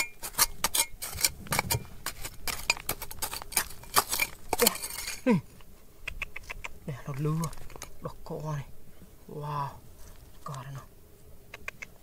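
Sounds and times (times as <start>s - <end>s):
metal tools clinking on rock: 0.0s - 5.4s.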